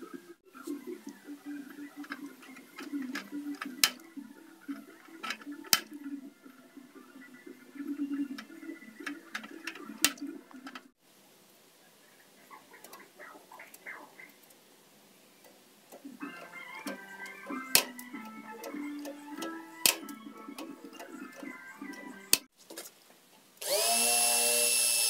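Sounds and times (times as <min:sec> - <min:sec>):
rivet mandrels snapping: 0:16.9 - 0:21.5.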